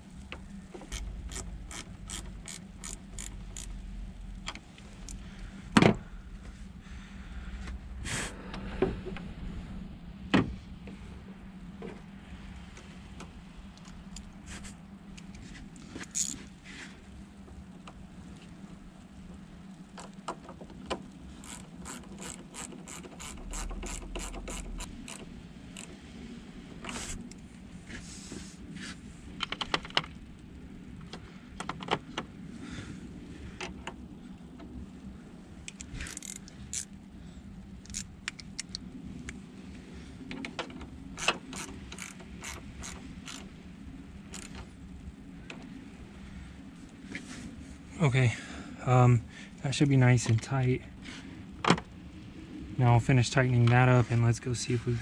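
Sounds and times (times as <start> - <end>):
ratchet wrench clicking: 0.9 - 3.8, 16.1 - 16.4, 21.4 - 25.2, 35.7 - 36.9, 41.2 - 43.4, 44.3 - 44.6.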